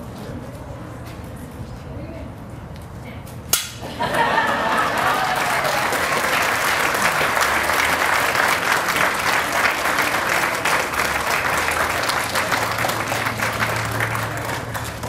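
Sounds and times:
crowd applauding: 3.9s - 15.0s.

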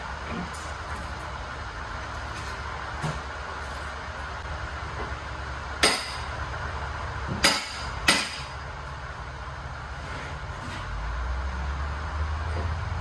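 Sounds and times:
hammer striking steel: 5.8s - 6.3s, 7.3s - 8.6s.

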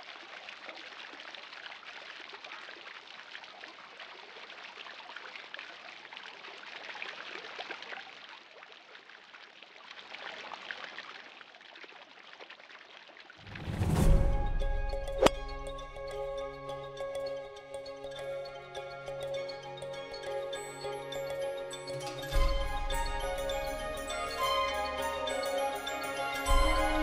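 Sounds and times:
fountain water splashing: 0.0s - 16.0s.

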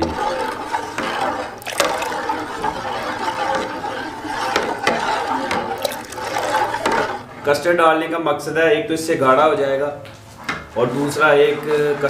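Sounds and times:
spoon scraping metal pot: 0.0s - 7.4s.

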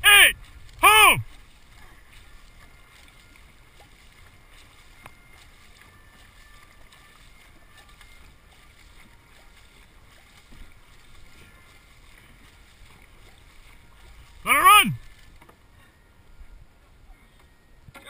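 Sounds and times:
wind rumble on microphone: 0.0s - 2.8s
water lapping against boat: 0.0s - 18.0s.

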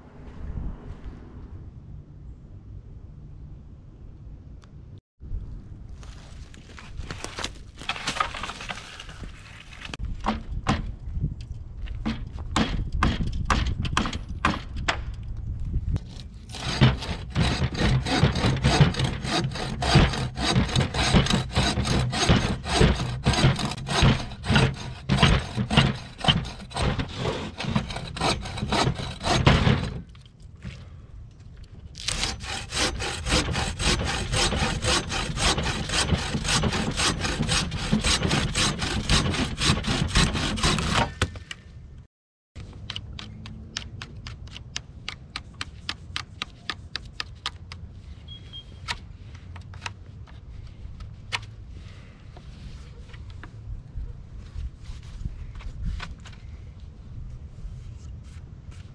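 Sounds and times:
bow saw cutting a branch: 16.0s - 30.1s, 32.0s - 41.5s.

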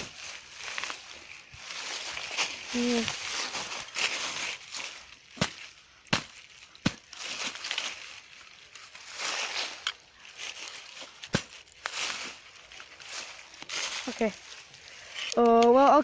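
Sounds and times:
leaves crunching and rustling: 0.0s - 16.0s.

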